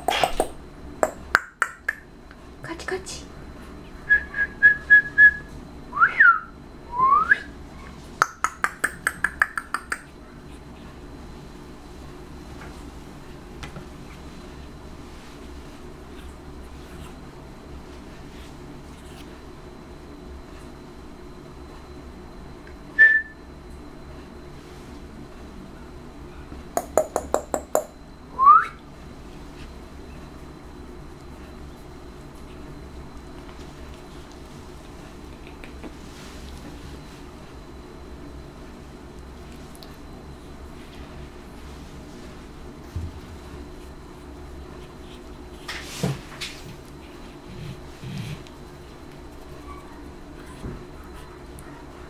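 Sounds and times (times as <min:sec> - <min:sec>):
mouth clicks: 0:00.0 - 0:02.0, 0:08.2 - 0:10.1
person whistling glides: 0:04.1 - 0:07.5, 0:23.0 - 0:23.4, 0:28.4 - 0:28.8.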